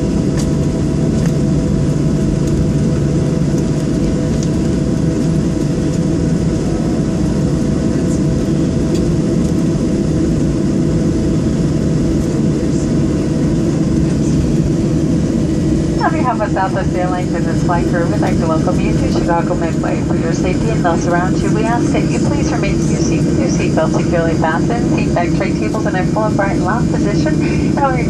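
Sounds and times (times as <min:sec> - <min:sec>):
jet engines idling in cabin: 0:00.0 - 0:28.0.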